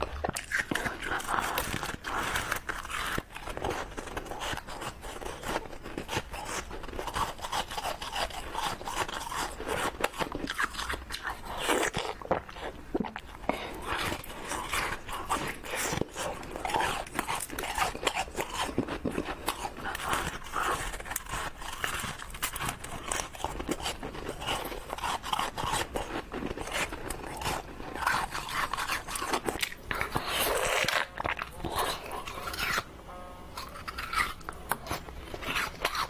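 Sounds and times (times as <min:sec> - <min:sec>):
crushed ice being chewed: 0:00.0 - 0:32.9, 0:33.5 - 0:36.0.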